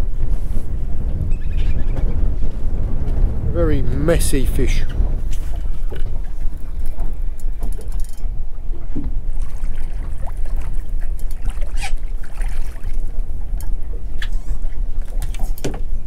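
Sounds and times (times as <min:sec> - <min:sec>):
wind rumbling on microphone: 0:00.0 - 0:16.0
water lapping at boat: 0:04.6 - 0:16.0
splashes: 0:09.4 - 0:13.1.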